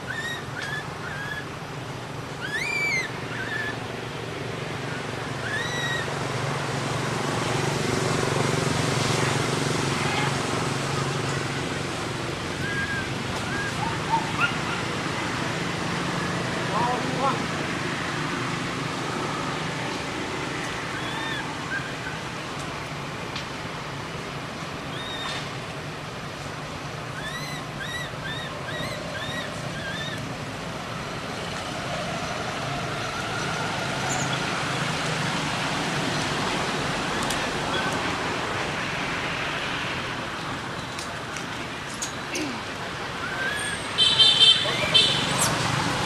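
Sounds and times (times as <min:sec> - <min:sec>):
distant traffic: 0:00.0 - 0:46.0.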